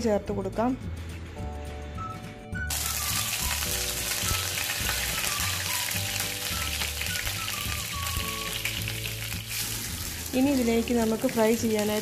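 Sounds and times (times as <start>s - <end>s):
oil sizzling and spluttering: 2.7s - 12.0s.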